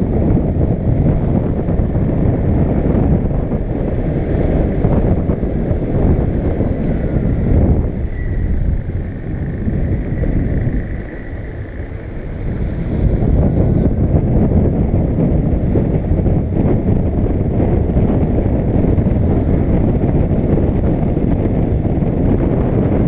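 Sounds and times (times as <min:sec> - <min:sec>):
road rumble: 0:00.0 - 0:23.0
wind buffeting microphone: 0:00.0 - 0:23.0
faint thin whine: 0:03.2 - 0:14.8.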